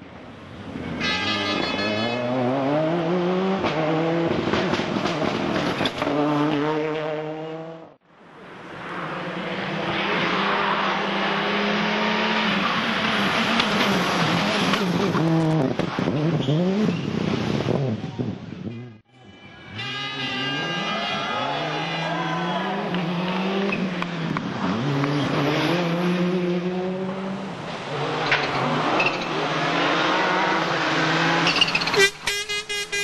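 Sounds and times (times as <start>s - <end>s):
car passing at high revs: 1.8s - 8.0s, 8.6s - 18.0s, 20.3s - 31.6s
rally car engine accelerating: 2.2s - 8.0s, 20.3s - 31.7s.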